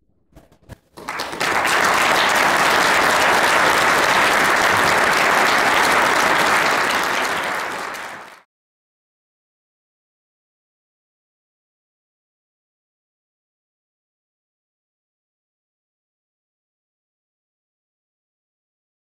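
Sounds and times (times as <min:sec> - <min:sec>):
audience applauding: 0:00.9 - 0:08.5.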